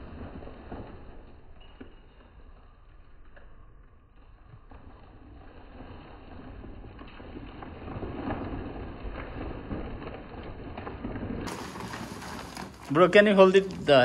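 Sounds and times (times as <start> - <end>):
plastic sack rustling: 4.8 - 14.0.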